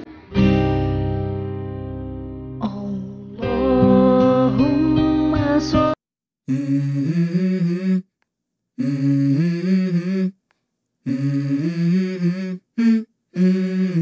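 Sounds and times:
person humming a melody: 0:02.6 - 0:08.1, 0:08.8 - 0:10.4, 0:11.0 - 0:14.0.

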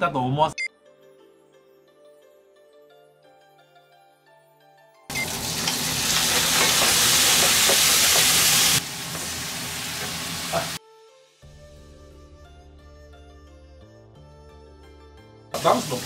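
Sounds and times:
shrimp sizzling in frying pan: 0:05.1 - 0:10.8, 0:15.6 - 0:16.0.

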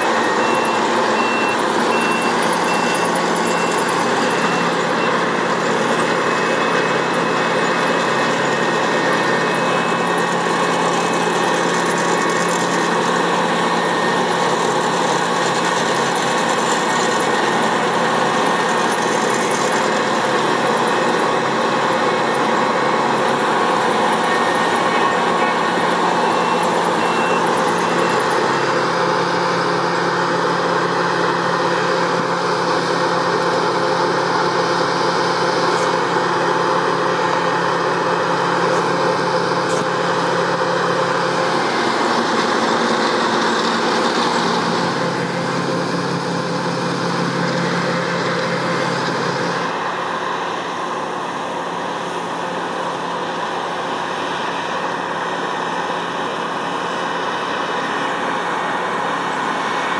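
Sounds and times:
combine harvester engine drone: 0:00.0 - 0:59.9.

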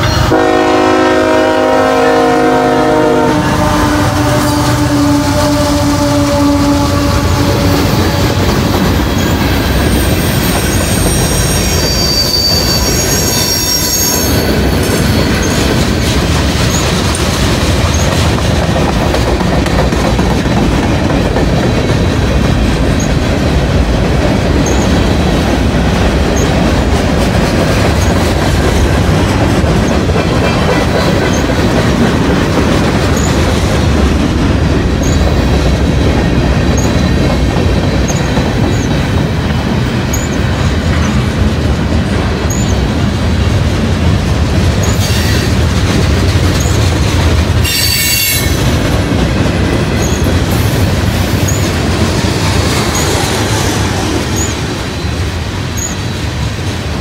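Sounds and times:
freight train rolling past: 0:00.0 - 0:57.0
high wheel squeal: 0:09.0 - 0:15.8, 0:42.5 - 0:42.8, 0:47.6 - 0:48.6, 0:52.8 - 0:55.1.

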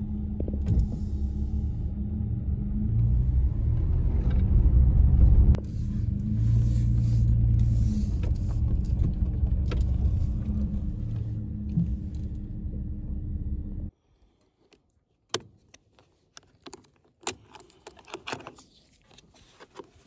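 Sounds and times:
truck engine and road rumble: 0:00.0 - 0:13.9.

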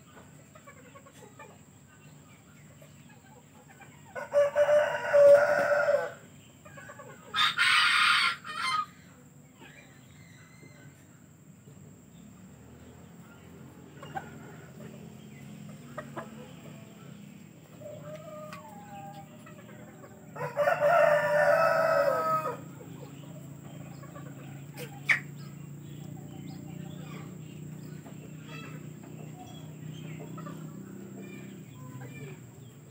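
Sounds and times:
rooster crowing: 0:04.2 - 0:06.2, 0:07.3 - 0:08.9, 0:20.3 - 0:22.7.

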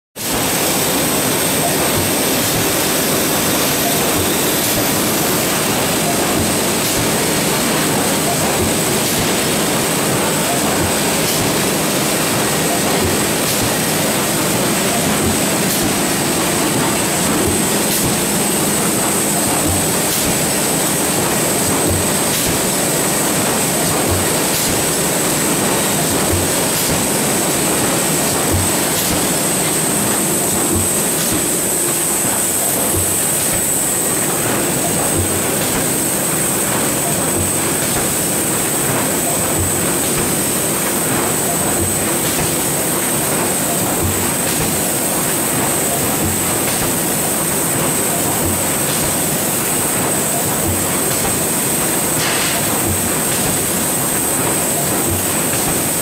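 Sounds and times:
high machine whine: 0:00.2 - 0:56.0
industrial machinery running: 0:00.2 - 0:56.0.

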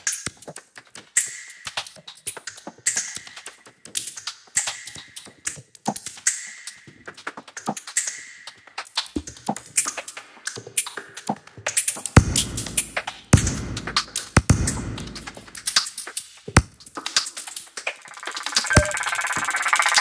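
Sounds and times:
brief high tone: 0:18.0 - 0:20.0.

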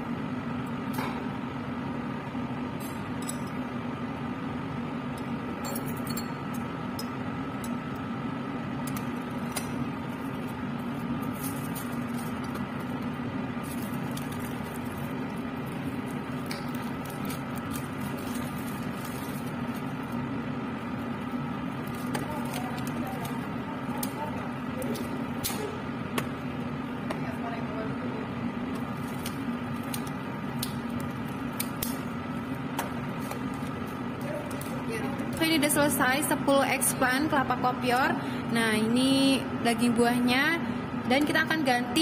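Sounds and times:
forceps clinking against glass: 0:05.6 - 0:07.1.

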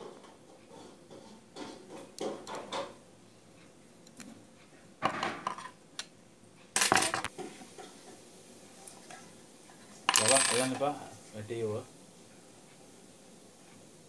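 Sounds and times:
small steel parts clinking: 0:06.8 - 0:07.3, 0:10.1 - 0:10.8.

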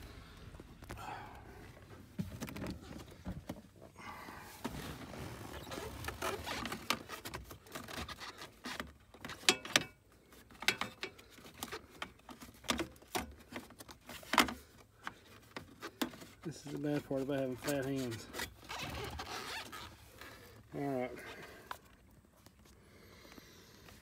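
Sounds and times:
plastic scraping: 0:04.6 - 0:09.5.

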